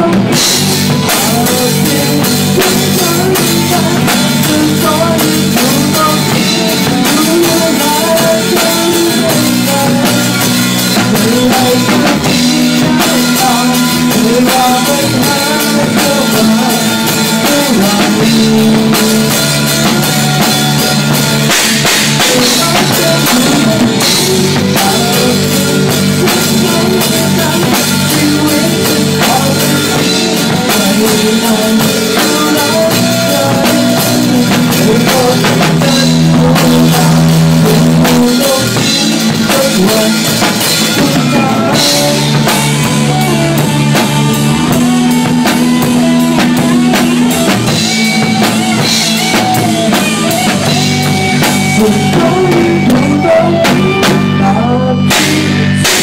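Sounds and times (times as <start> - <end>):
drum kit playing: 0.0 - 56.0
electric guitars: 0.0 - 56.0.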